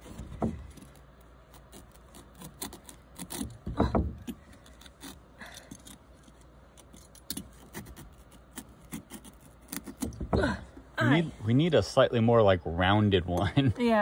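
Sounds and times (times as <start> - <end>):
peeler scraping pumpkin skin: 0.0 - 10.4.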